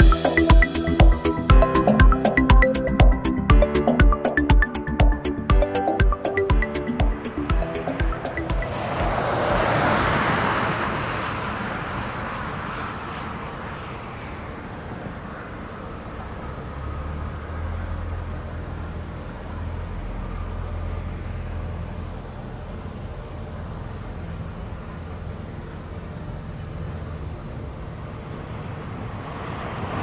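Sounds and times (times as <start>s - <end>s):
jet airliner engines: 7.2s - 30.0s.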